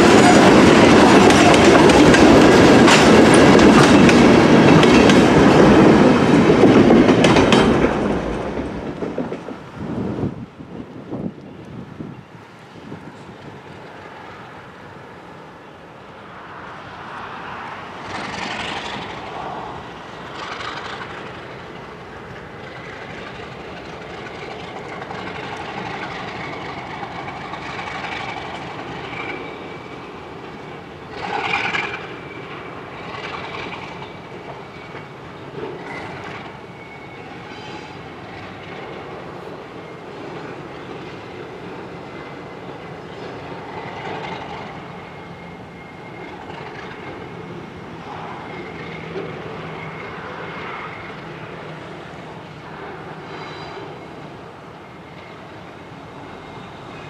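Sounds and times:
freight train rumbling on rails: 0:00.0 - 0:57.0
high wheel squeal: 0:24.3 - 0:38.7, 0:42.2 - 0:57.0.

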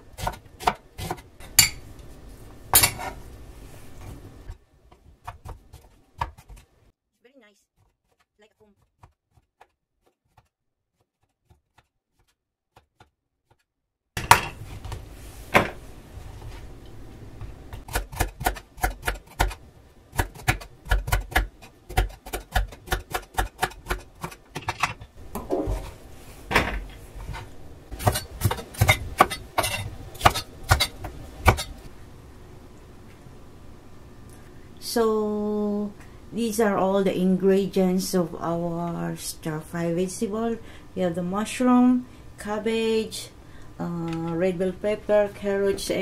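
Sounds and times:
knife chopping on wooden board: 0:20.2 - 0:24.8.

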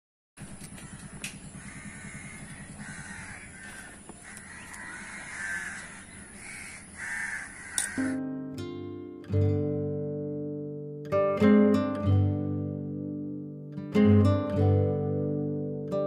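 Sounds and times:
crows cawing: 0:00.4 - 0:08.2
acoustic guitar strum: 0:07.7 - 0:16.0.

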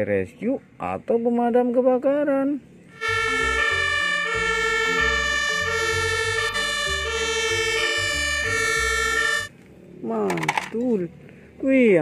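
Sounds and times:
two-tone fire engine sirens: 0:02.9 - 0:09.5.

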